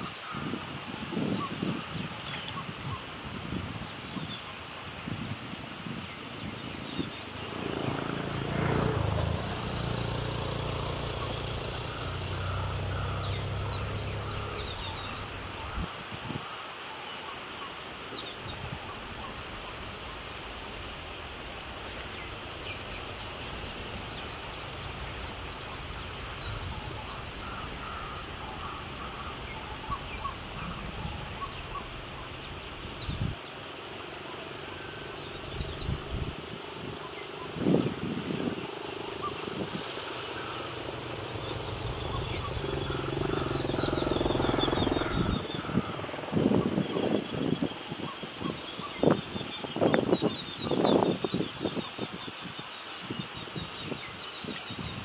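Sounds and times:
high insect drone: 0.0s - 55.0s
bird chirping: 6.7s - 15.9s, 18.1s - 33.7s, 34.8s - 47.6s
low engine hum: 7.3s - 15.9s, 18.4s - 46.9s.

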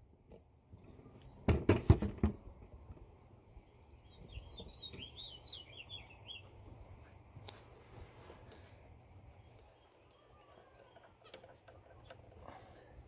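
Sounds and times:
bird chirping: 3.5s - 6.8s, 9.3s - 12.6s.

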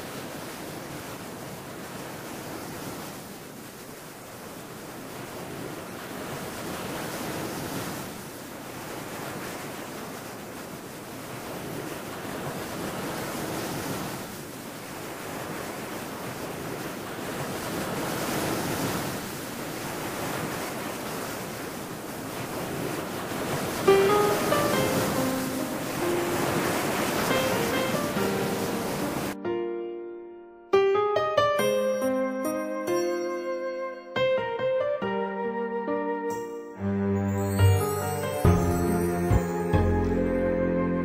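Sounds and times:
waves breaking on a beach: 0.0s - 29.4s.

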